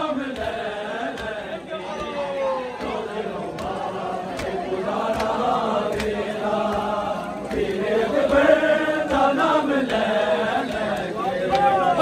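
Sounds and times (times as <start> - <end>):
men chanting together: 0.0 - 12.0
hands slapping bare chests: 0.3 - 2.2, 2.8 - 6.9.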